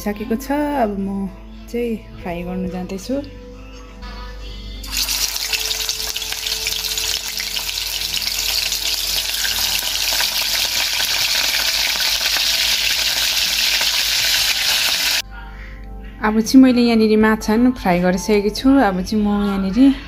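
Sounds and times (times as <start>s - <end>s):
fish sizzling in hot oil: 4.8s - 15.2s.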